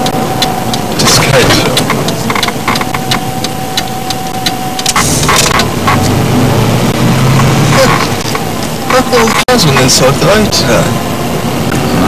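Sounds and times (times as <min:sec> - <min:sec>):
sharp clicks and knocks: 0:00.0 - 0:06.2
car engine hum: 0:00.0 - 0:12.0
road noise: 0:00.0 - 0:12.0
thin steady whine: 0:00.0 - 0:12.0.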